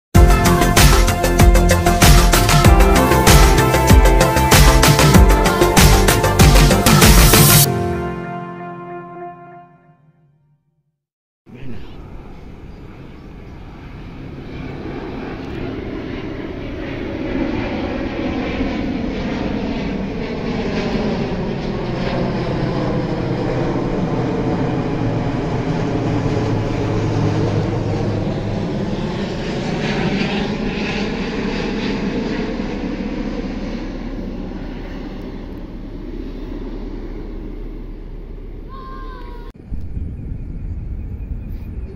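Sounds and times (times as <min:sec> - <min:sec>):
jet airliner passing overhead: 0:00.2 - 0:09.8, 0:11.5 - 0:41.9.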